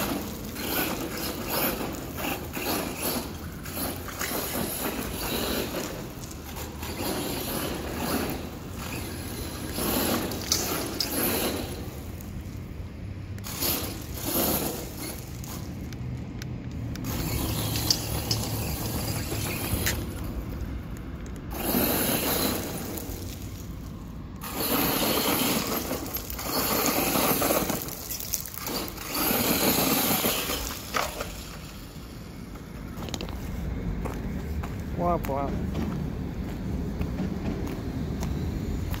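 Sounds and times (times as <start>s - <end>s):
rc truck motor: 0.0s - 12.6s, 13.4s - 15.8s, 16.9s - 20.4s, 21.5s - 23.6s, 24.4s - 32.3s
tyres throwing grit: 0.0s - 12.6s, 21.5s - 31.9s.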